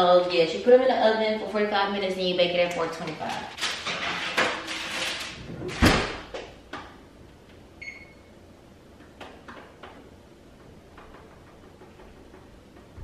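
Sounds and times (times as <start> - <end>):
oven door shutting with a thud: 5.5 - 6.4
oven control panel beep: 7.8 - 8.3.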